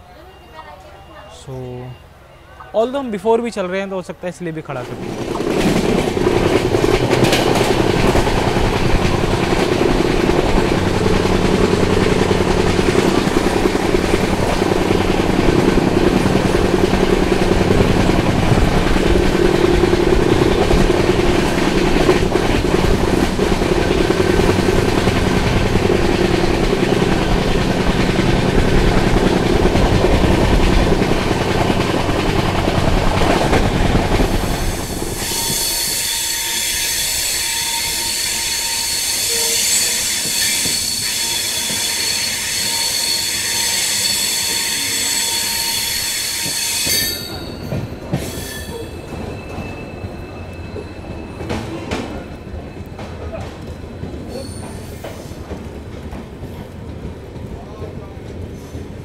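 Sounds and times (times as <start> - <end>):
train wheels on rails: 2.6 - 59.0.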